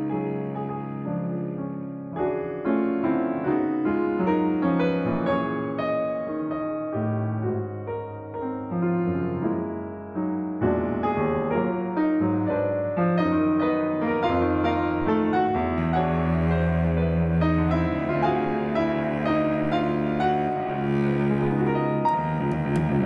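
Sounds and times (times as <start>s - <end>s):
bowed cello: 0.0s - 1.6s, 4.2s - 5.8s, 13.2s - 23.0s
piano: 0.0s - 23.0s.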